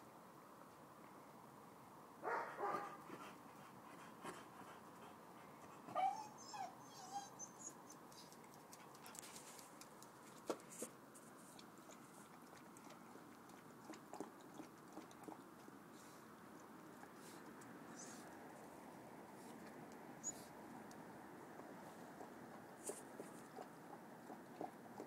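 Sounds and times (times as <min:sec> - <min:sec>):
dog whimpering: 0:05.9 - 0:07.8.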